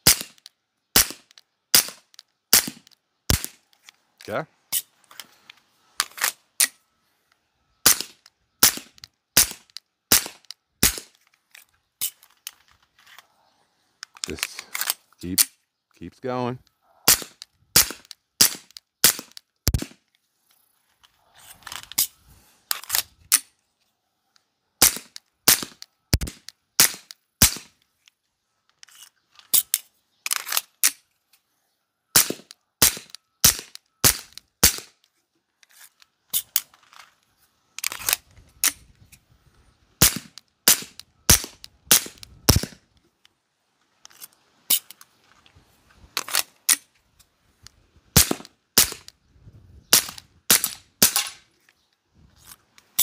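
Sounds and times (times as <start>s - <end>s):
suppressed pistol shots: 0.0s - 3.6s, 7.8s - 11.1s, 17.1s - 20.0s, 24.8s - 27.7s, 32.2s - 34.9s, 40.0s - 42.8s, 48.2s - 49.1s, 49.9s - 51.4s.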